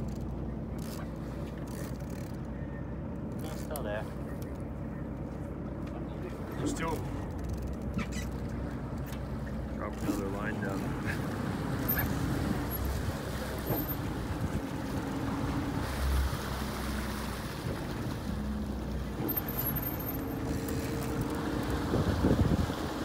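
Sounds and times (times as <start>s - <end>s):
boat engine running: 0.0s - 23.0s
water washing along hull: 0.0s - 23.0s
wind buffeting microphone: 21.3s - 23.0s.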